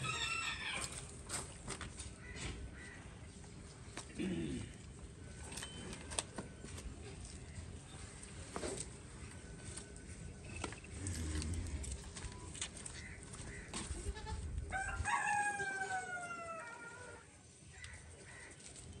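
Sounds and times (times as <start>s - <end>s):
rooster crowing: 14.7s - 17.2s.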